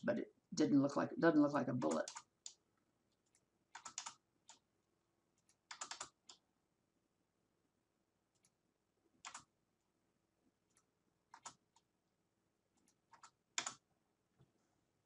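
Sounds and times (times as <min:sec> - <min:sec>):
computer mouse clicks: 0:01.8 - 0:04.6, 0:05.4 - 0:06.4, 0:09.2 - 0:09.5, 0:10.7 - 0:11.9, 0:12.8 - 0:13.8.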